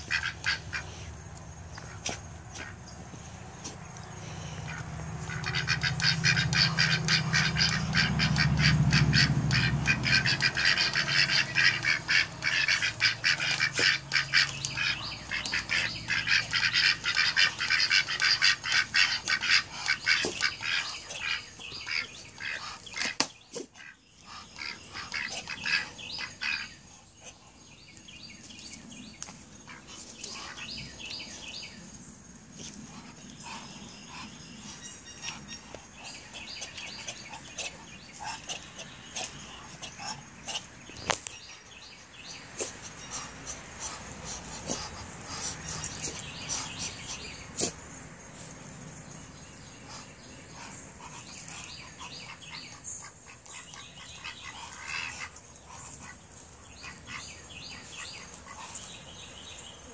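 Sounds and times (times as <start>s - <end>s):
ducks quacking: 0.0s - 1.1s, 4.4s - 27.4s, 32.6s - 41.7s, 42.5s - 47.8s, 49.7s - 59.1s.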